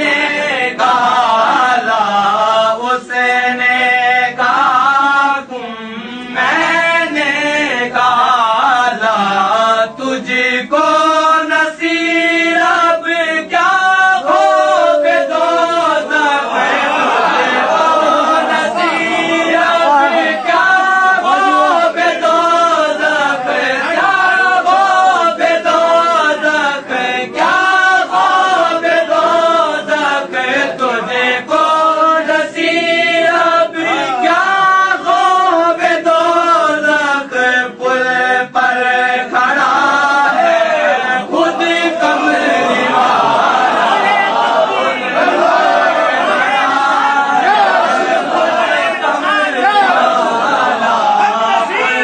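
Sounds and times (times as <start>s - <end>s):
man chanting: 0.0s - 43.4s.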